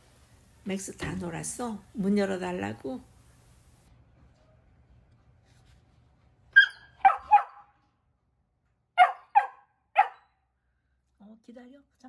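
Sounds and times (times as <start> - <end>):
puppy barking: 6.6 - 7.8, 9.0 - 10.4.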